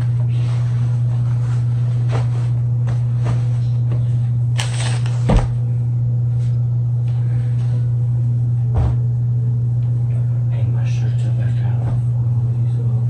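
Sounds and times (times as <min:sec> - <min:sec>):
steady low hum: 0:00.0 - 0:13.0
clothes rustling: 0:00.4 - 0:03.6.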